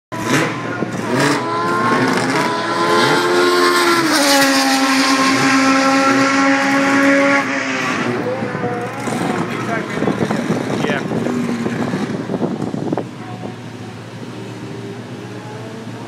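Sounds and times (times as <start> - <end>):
racing car passing at speed: 0.2 - 13.0.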